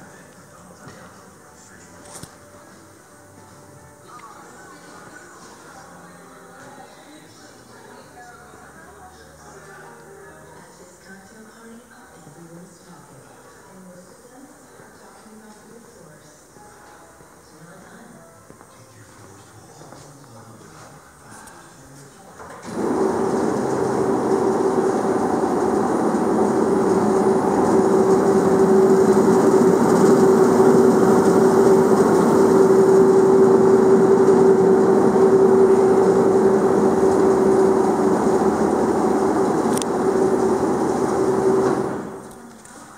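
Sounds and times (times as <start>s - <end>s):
dough sheeter machine whining: 22.7s - 42.6s.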